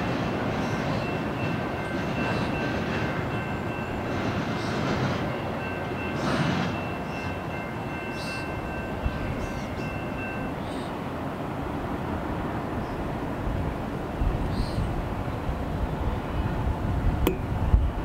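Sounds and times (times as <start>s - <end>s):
freight train rumbling on rails: 0.0s - 18.0s.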